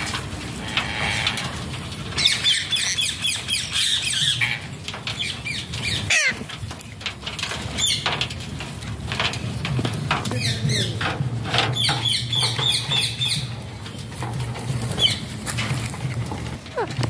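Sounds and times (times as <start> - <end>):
wings flapping and rustling: 0.0 - 17.0
parakeets squawking: 2.2 - 4.6, 5.2 - 6.5, 16.7 - 17.0.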